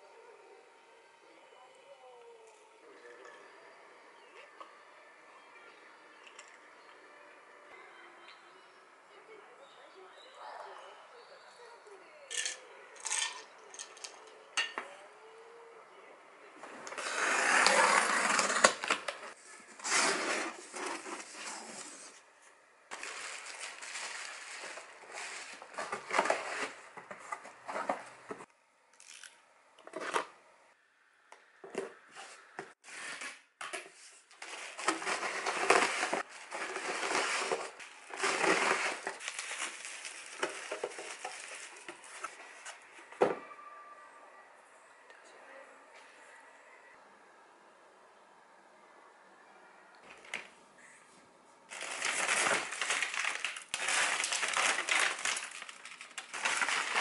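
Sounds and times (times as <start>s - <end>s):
bubble wrap and cardboard rustling: 17.0s - 22.3s, 22.9s - 28.5s, 32.8s - 42.8s, 51.7s - 57.0s.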